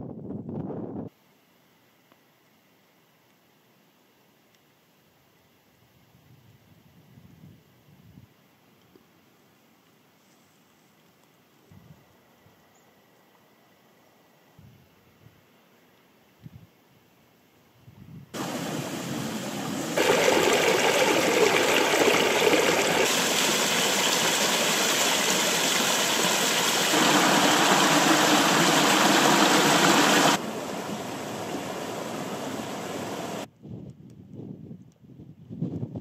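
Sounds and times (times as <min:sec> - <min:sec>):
stream cascading over rock: 0:18.4 - 0:33.5.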